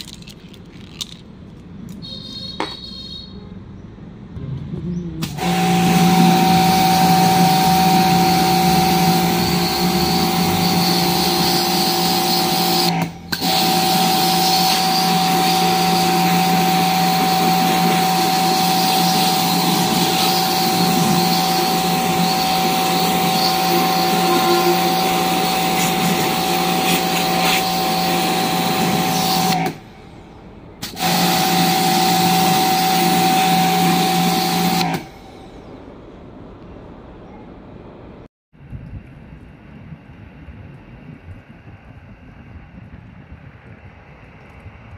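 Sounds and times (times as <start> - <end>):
pressure washer pump humming: 5.2 - 30.2, 30.8 - 35.4
water jet hissing: 5.3 - 29.8.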